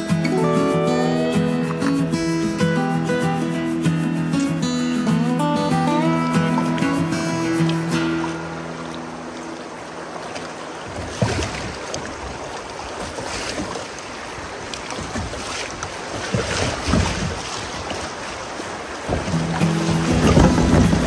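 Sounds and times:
river water flowing: 0.0 - 21.0
wind on microphone: 18.9 - 21.0.

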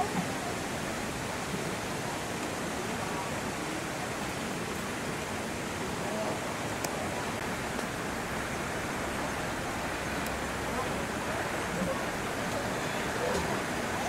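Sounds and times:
outdoor background noise: 0.0 - 14.0
faint indistinct voices: 10.0 - 14.0.

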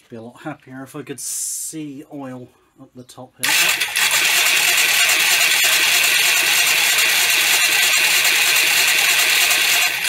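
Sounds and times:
engine cranking on starter: 3.4 - 10.0.

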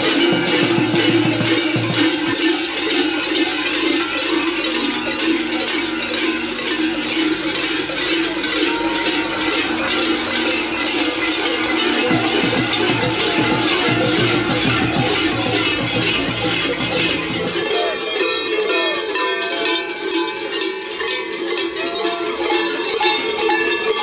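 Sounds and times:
bells clanking rhythmically: 0.0 - 24.0.

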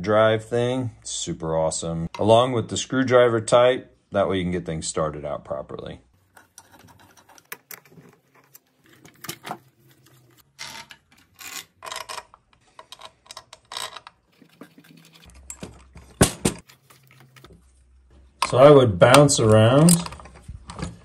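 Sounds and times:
metal tools clicking and scraping: 6.3 - 17.5.

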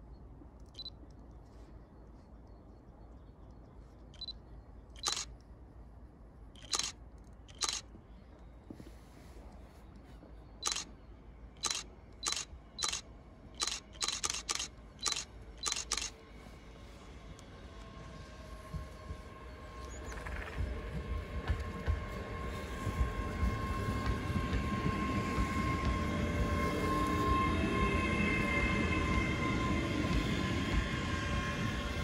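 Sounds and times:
short sharp clicks: 13.6 - 16.1.

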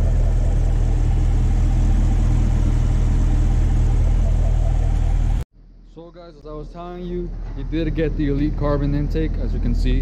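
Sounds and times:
car engine idling: 0.0 - 5.4.

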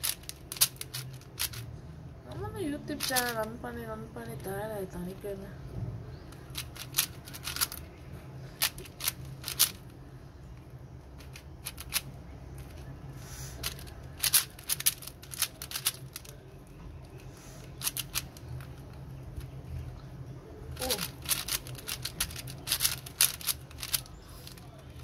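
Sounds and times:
plastic puzzle cube clicking: 0.0 - 1.6, 3.0 - 3.4, 6.3 - 7.8, 8.6 - 9.8, 11.2 - 12.8, 13.6 - 16.4, 17.8 - 18.7, 20.8 - 25.0.

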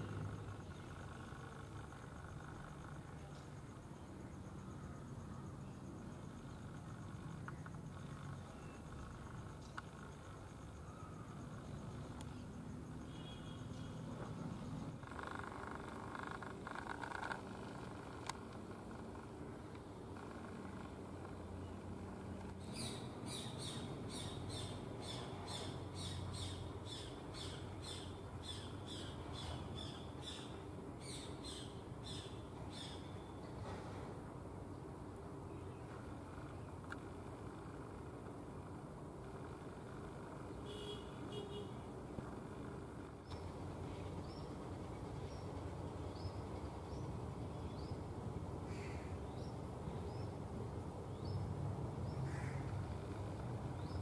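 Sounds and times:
harsh crow-like calls: 48.7 - 49.2, 52.2 - 52.8.

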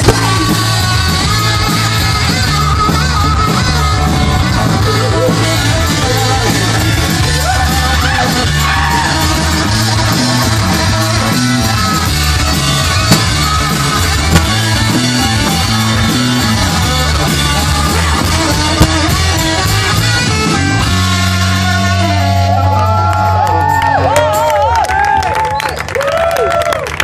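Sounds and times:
rock band playing: 0.0 - 25.1
sharp drum accents: 12.8 - 15.7.

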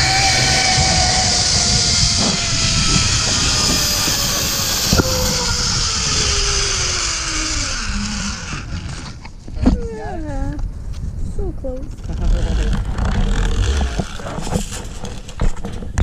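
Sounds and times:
zip line trolley whine: 0.0 - 9.3
wind rushing past microphone: 0.0 - 16.0.

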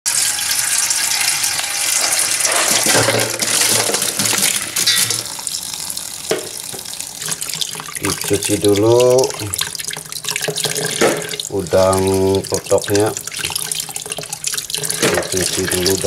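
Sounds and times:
tap water splashing into basin: 6.2 - 16.0.

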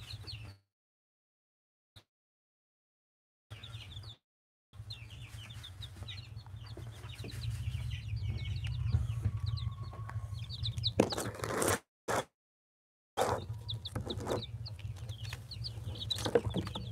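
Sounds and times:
chicks peeping: 0.0 - 0.6, 3.5 - 4.2, 4.8 - 11.5, 13.2 - 16.9
steady low rumble: 6.0 - 11.0, 13.6 - 16.9.

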